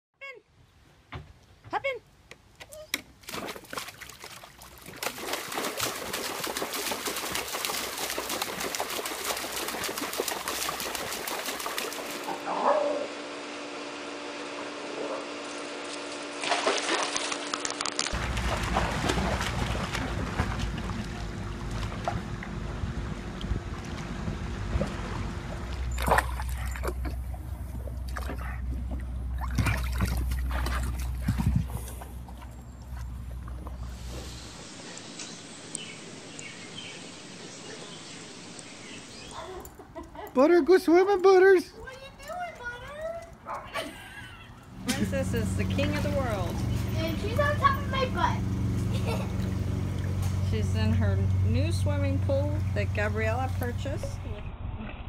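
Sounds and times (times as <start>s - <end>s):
water sloshing and splashing: 3.1s - 12.4s, 15.9s - 34.4s, 41.8s - 43.7s.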